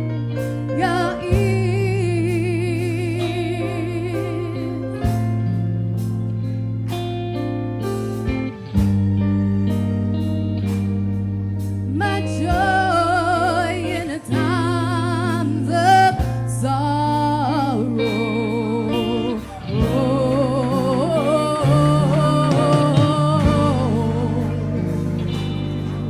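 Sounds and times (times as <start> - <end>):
keyboard and bass chords: 0.0 - 26.0
singer with wide vibrato: 11.9 - 26.0.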